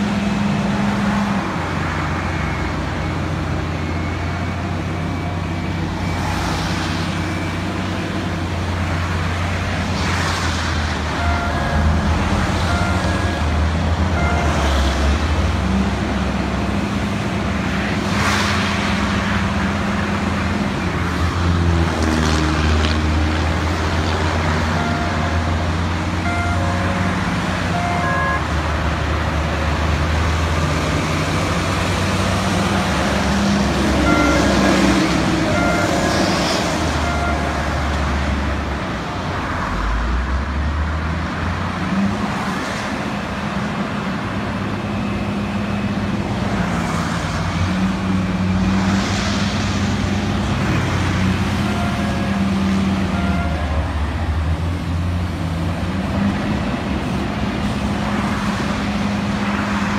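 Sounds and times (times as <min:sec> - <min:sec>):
heavy diesel engines running: 0:00.0 - 0:59.9
short high beeps: 0:34.0 - 0:34.6.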